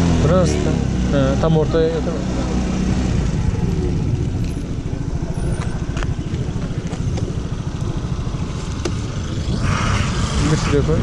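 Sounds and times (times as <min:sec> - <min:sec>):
scooter engine puttering: 0:02.5 - 0:09.6.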